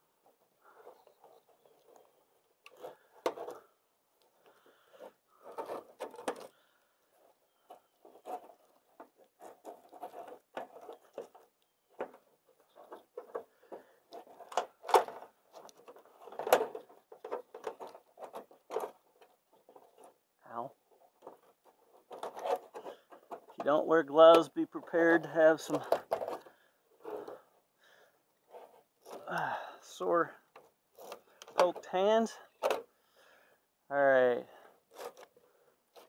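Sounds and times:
metal mesh rustling and scraping: 4.9 - 6.6, 7.6 - 20.2, 20.8 - 27.6, 28.4 - 32.8, 34.6 - 36.0.

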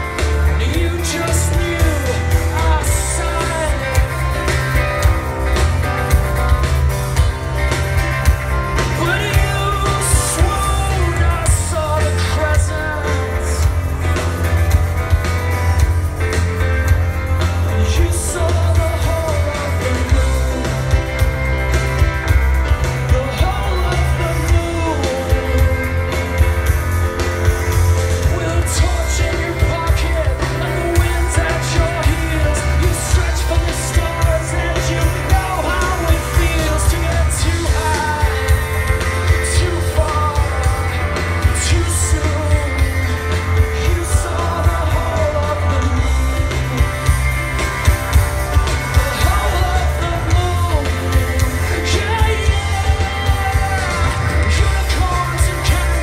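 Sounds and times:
person singing: 0.0 - 5.4, 8.5 - 14.2, 17.4 - 21.6, 22.8 - 26.7, 27.4 - 47.2, 48.6 - 56.0
rock band playing: 0.0 - 56.0.

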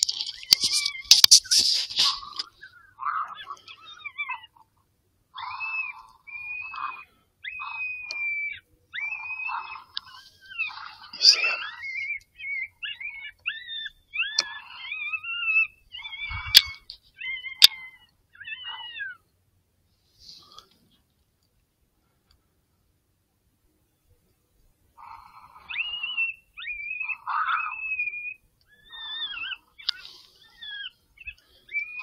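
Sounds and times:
sharp clicks: 0.0 - 2.6
high-pitched animal calls: 0.0 - 19.3, 25.0 - 32.0.

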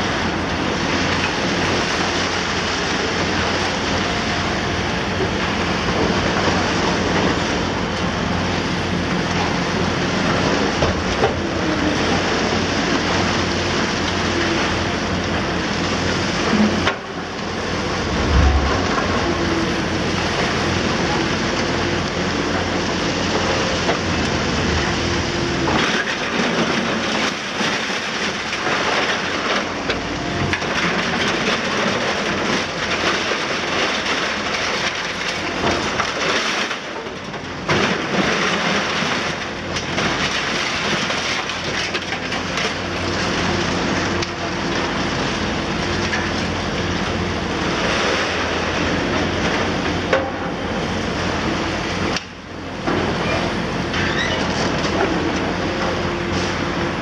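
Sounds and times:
diesel engine humming: 0.0 - 25.8
rubble crashing down: 17.9 - 20.5.

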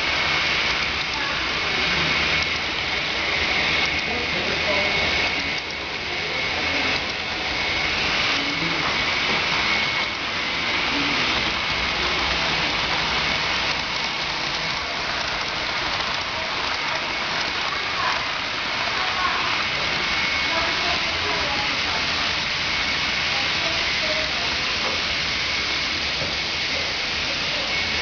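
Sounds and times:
model train wheels rushing on track: 0.0 - 28.0.

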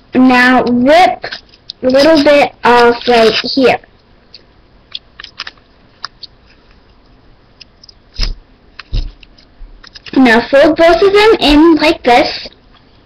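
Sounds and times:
paper wrapper crinkling: 4.9 - 7.0, 7.8 - 10.3
louder thumps: 8.2 - 9.2.

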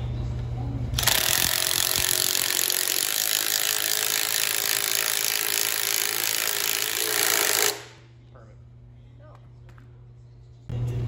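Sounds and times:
impact wrench running: 1.0 - 8.0.

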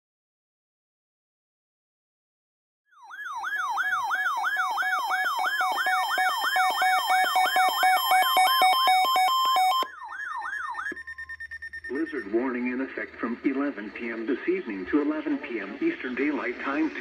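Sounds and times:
warbling electronic alert siren: 2.9 - 12.6
two-pitch alternating beeps: 5.9 - 12.5.

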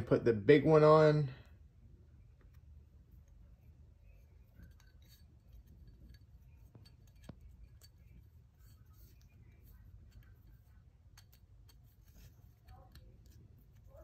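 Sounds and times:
faint clicks and clinks: 4.0 - 14.0.

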